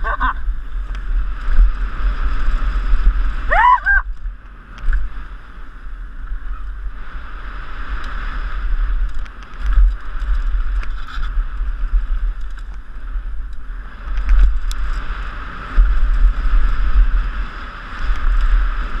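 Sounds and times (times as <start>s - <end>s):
wind buffeting microphone: 0.0s - 19.0s
bike rattling clicks and knocks: 8.0s - 15.1s.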